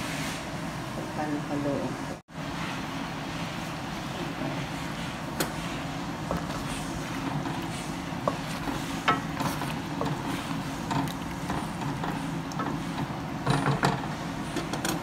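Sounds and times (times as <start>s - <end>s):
wooden spoon stirring stew: 5.0s - 14.1s.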